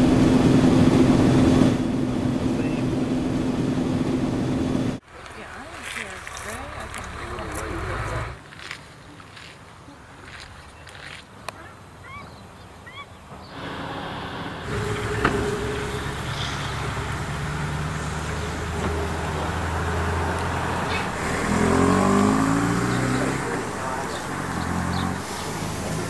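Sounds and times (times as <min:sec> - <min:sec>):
vehicle engine running: 0:00.0 - 0:05.0, 0:13.6 - 0:26.0
vehicle accelerating: 0:13.5 - 0:26.0.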